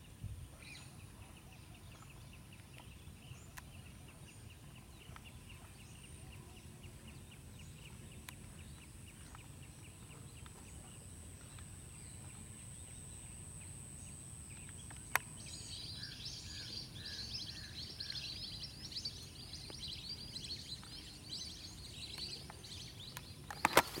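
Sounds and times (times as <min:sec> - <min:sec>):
insects high thin whine: 0:00.0 - 0:24.0
chattering birdcalls: 0:02.8 - 0:24.0
sharp click: 0:23.1 - 0:24.0.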